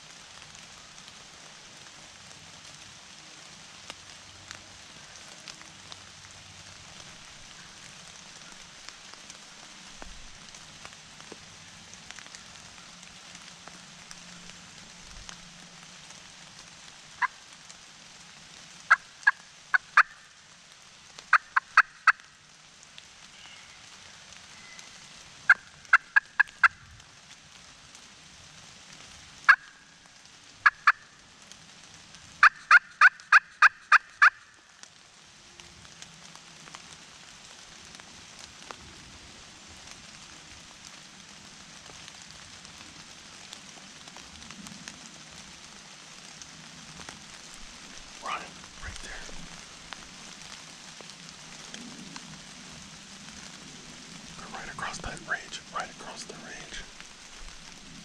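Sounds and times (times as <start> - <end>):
rain patter: 0.0 - 58.0
wild turkey yelps: 18.9 - 20.2, 21.3 - 22.2, 25.5 - 26.8, 29.5 - 29.8, 30.6 - 31.1, 32.4 - 34.5.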